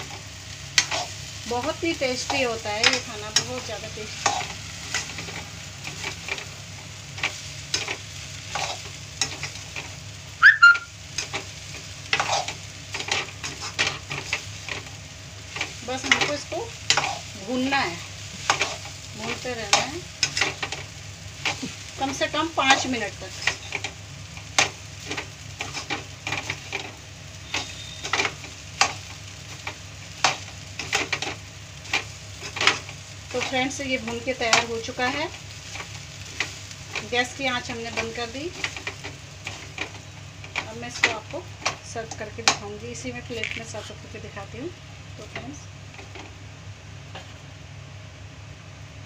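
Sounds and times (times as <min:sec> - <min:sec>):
frying hiss: 0:00.0 - 0:49.0
rice sizzling: 0:00.0 - 0:49.0
short high squeaks: 0:10.4 - 0:11.0.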